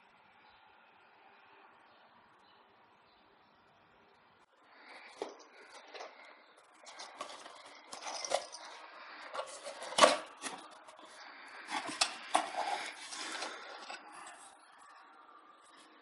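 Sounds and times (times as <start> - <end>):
packaging rustling: 5.0 - 14.7.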